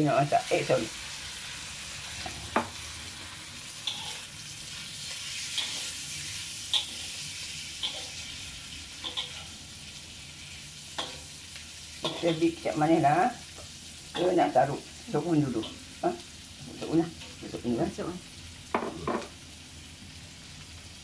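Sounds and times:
food sizzling in a wok: 0.0 - 21.0
spatula scraping and knocking wok: 1.0 - 16.0.

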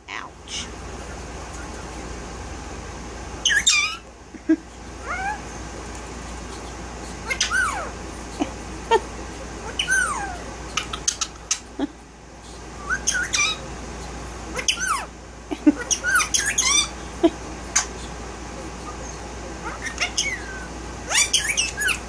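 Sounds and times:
parakeet squawking and whistling: 3.4 - 4.0, 5.0 - 5.5, 6.5 - 8.0, 9.6 - 11.7, 12.8 - 13.6, 14.6 - 15.1, 15.8 - 17.0, 19.6 - 22.0.

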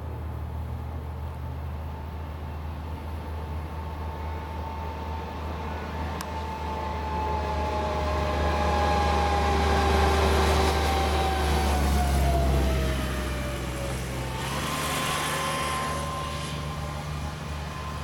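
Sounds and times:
distant vehicle passing: 4.9 - 18.0
whine sliding down in pitch: 5.8 - 18.0.

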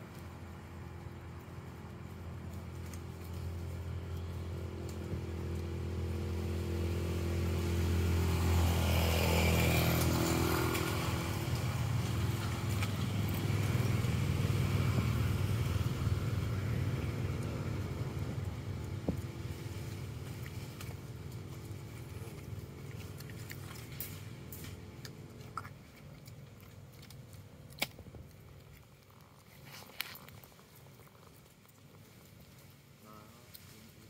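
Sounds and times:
passing vehicle engine hum: 0.0 - 31.3.

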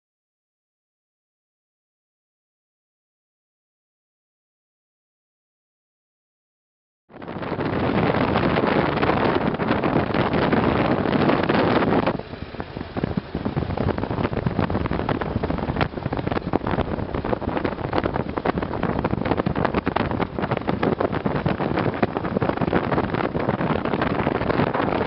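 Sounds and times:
wind buffeting microphone: 7.1 - 25.0.

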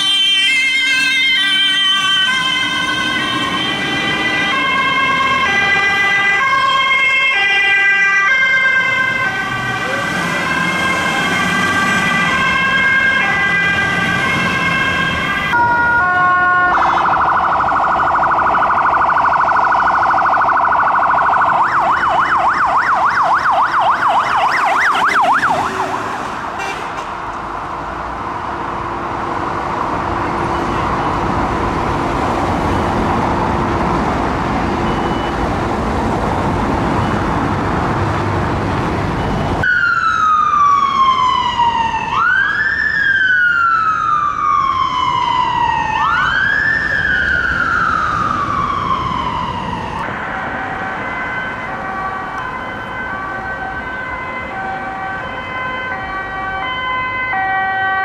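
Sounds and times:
warbling siren: 0.0 - 26.6, 38.8 - 58.0
siren wail falling in pitch: 0.0 - 26.7, 39.1 - 58.0
traffic and tyre noise: 0.0 - 58.0
fire truck siren stepped tones: 33.8 - 35.7, 36.4 - 58.0.

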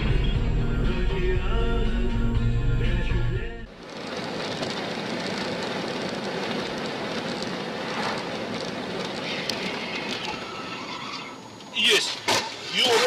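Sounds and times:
car road and wind noise: 3.7 - 11.8.

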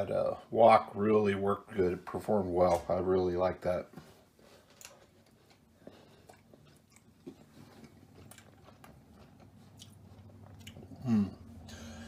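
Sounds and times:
person chewing food: 4.4 - 12.0.

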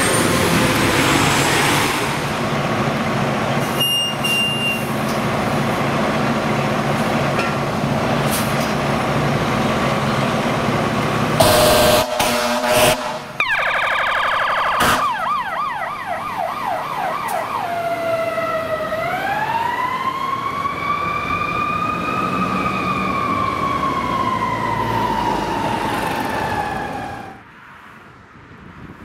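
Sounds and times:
road and wind noise: 0.0 - 29.0
fire truck siren yelping and wailing: 11.1 - 27.5.

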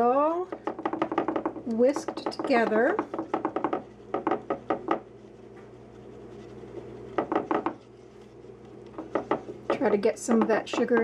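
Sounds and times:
whisk tapping glass dish: 0.0 - 5.1, 7.2 - 7.8, 9.0 - 11.0.

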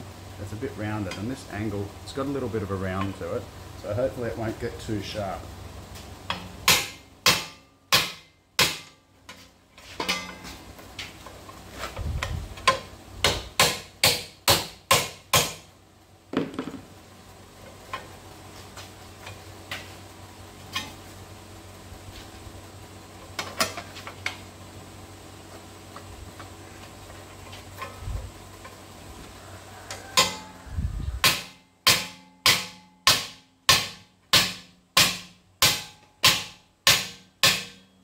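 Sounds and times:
metal bar striking sheet steel: 6.3 - 9.0, 30.2 - 30.5, 31.2 - 38.0.

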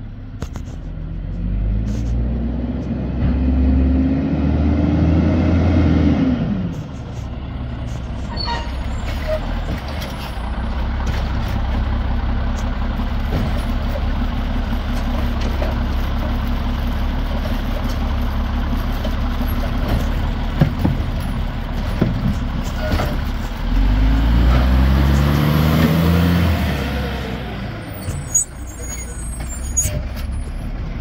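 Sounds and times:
garbage truck engine running: 5.2 - 31.0
sharp knocks of cart dumping: 13.2 - 14.2, 18.9 - 26.0.

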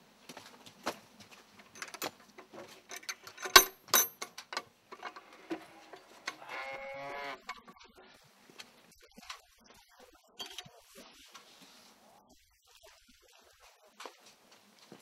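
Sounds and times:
metal latch rattling on door: 2.9 - 5.3
door creaking on hinges: 4.5 - 7.8.

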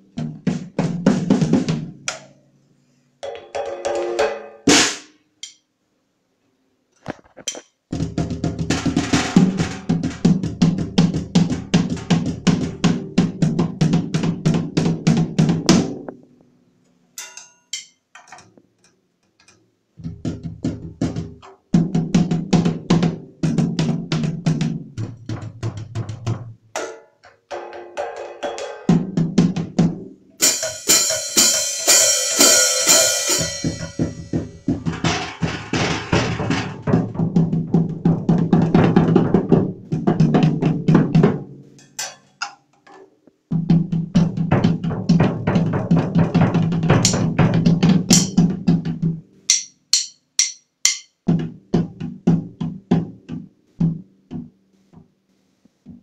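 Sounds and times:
drum kit runs: 28.9 - 41.2.

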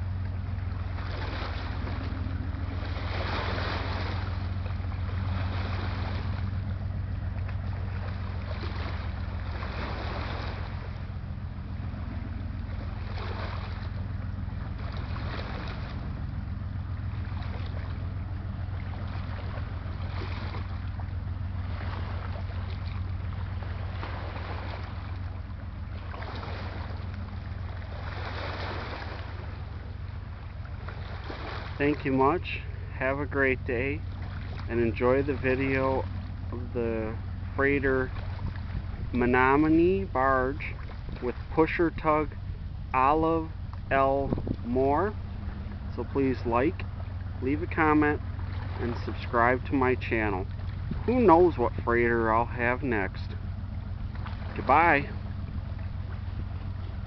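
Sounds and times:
boat diesel engine drone: 0.0 - 57.0
waves washing in: 0.0 - 57.0.

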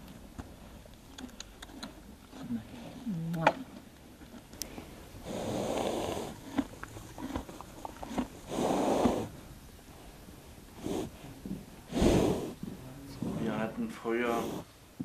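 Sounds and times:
horse chewing hay: 0.0 - 14.7
horse breathing hard: 3.7 - 14.8.

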